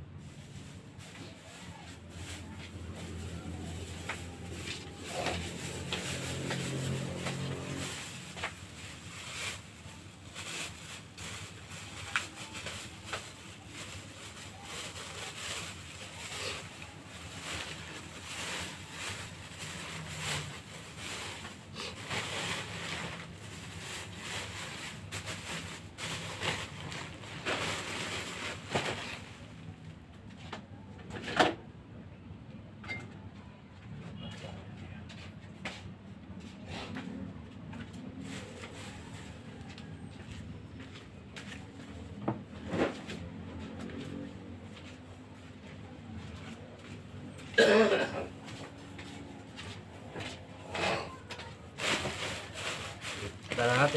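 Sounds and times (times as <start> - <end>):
plastic bag crinkling: 0.2 - 29.5, 51.2 - 53.9.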